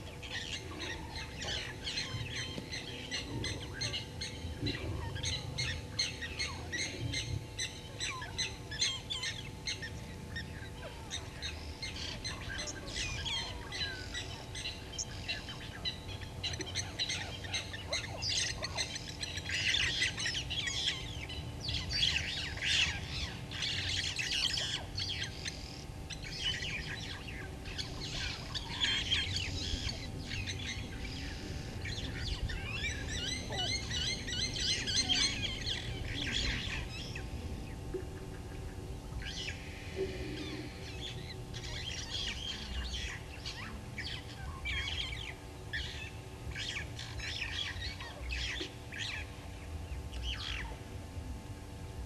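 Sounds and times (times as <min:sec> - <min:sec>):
birds chirping and calling: 0:00.0 - 0:50.9
faint steady hum: 0:00.0 - 0:52.0.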